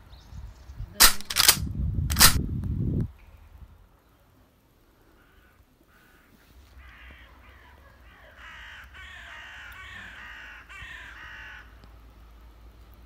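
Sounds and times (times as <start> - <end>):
crows cawing: 5.0 - 11.9.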